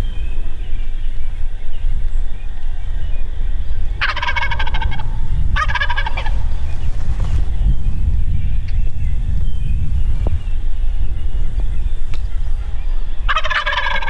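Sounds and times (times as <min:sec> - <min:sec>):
steady low rumble: 0:00.0 - 0:14.0
turkey gobbling: 0:04.0 - 0:06.8, 0:12.9 - 0:14.0.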